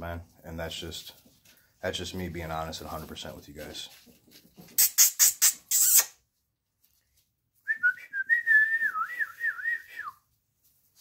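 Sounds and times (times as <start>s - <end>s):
person whistling: 7.7s - 10.2s.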